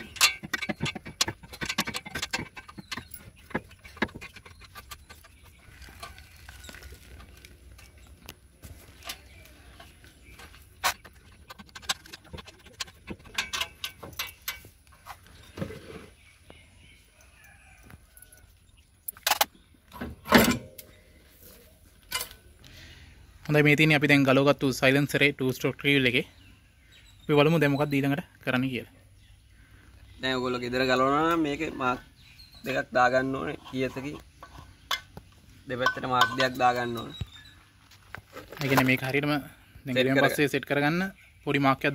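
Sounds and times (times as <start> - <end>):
loud metal clanks: 0.0 - 4.4
spanner clinking on metal: 0.0 - 5.3, 10.8 - 14.7, 35.8 - 36.7.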